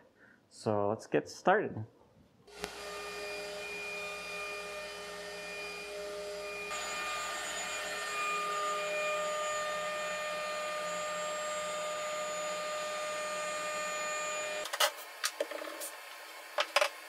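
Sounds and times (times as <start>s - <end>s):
router spindle whine: 2.5s - 14.7s.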